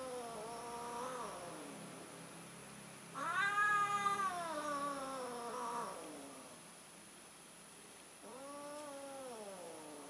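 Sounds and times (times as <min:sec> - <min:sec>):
cat yowling: 0:03.2 - 0:06.4.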